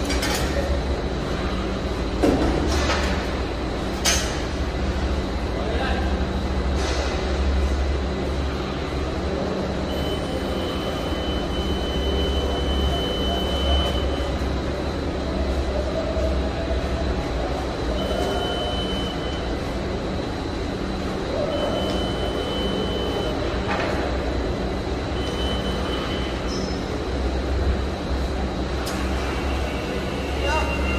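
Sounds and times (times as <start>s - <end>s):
low machinery hum: 0.0s - 30.9s
high steady tone: 9.9s - 14.4s, 17.9s - 19.6s, 21.4s - 23.4s, 25.2s - 26.4s.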